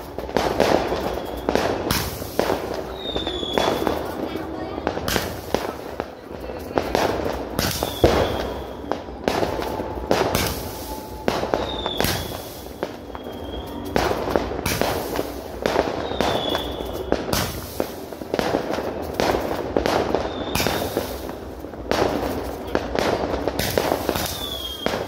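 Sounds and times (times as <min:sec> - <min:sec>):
firework bangs: 0:00.0 - 0:25.0
fireworks hissing and crackling: 0:00.0 - 0:25.0
high firework whistle: 0:00.3 - 0:04.4, 0:07.6 - 0:18.1, 0:20.1 - 0:21.4, 0:22.0 - 0:25.0.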